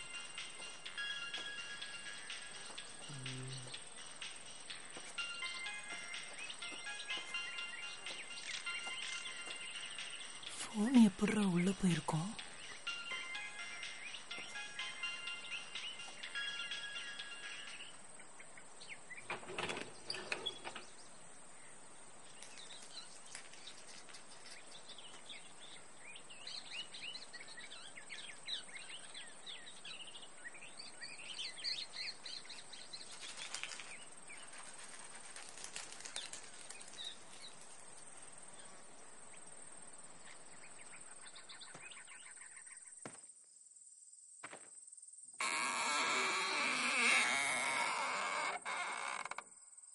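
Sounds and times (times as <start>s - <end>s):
steady high hiss: 0.0s - 41.5s
small birds chirping: 0.0s - 43.2s
rustles and knocks: 19.2s - 20.9s, 32.6s - 38.1s.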